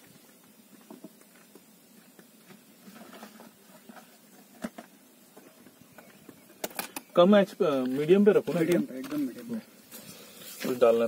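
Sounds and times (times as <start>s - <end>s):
handling clicks and rustles: 7.8s - 9.5s.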